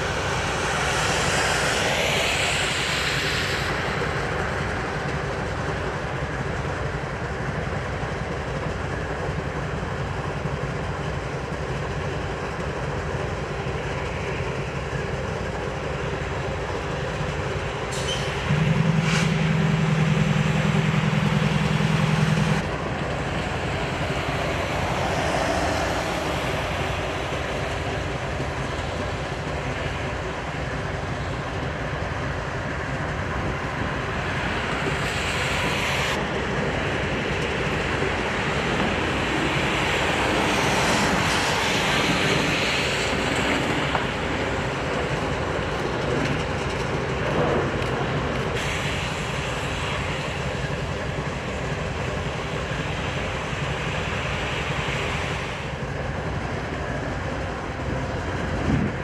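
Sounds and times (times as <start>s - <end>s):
freight train rumbling on track: 0.0s - 59.0s
loud low steady tone: 18.1s - 30.1s.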